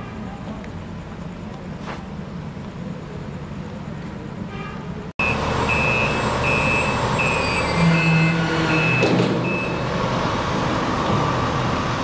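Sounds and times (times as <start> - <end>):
reversing alarm beeping: 5.2 - 9.9
truck engine running: 5.2 - 12.0.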